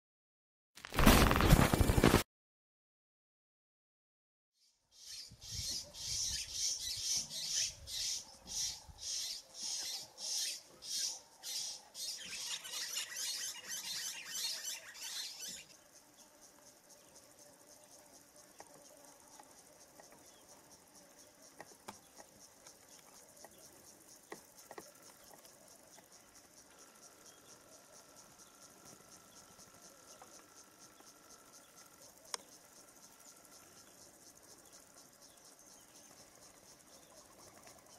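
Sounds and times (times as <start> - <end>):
insects pulsing chirring: 4.6 - 37.9
steady high insect trill: 4.6 - 37.9
faint clicks: 31.8 - 32.6.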